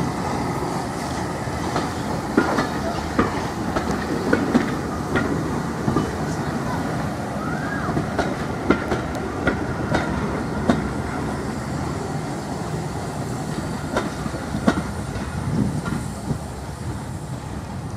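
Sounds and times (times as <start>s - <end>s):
train wheels rumbling on rail: 0.0s - 17.9s
wheels clicking over rail joints: 1.0s - 6.9s, 7.5s - 11.3s, 13.5s - 16.1s.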